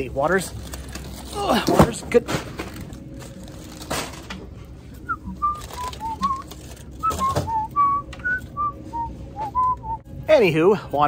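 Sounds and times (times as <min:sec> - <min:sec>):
man whistling a tune: 0:05.0 - 0:10.1.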